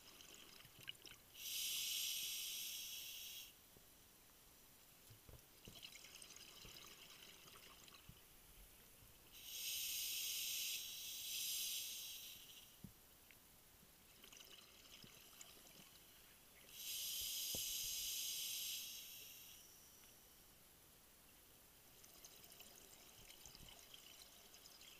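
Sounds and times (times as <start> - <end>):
regulator inhale hiss: 1.4 - 3.6, 9.3 - 12.8, 16.7 - 20.4.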